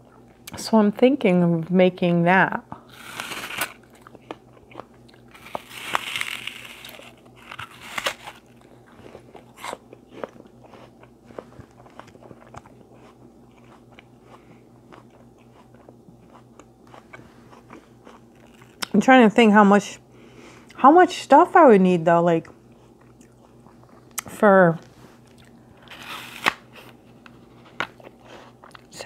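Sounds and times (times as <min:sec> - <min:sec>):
person crunching and chewing: 0:02.9 - 0:19.0, 0:22.7 - 0:24.3, 0:25.2 - 0:28.9.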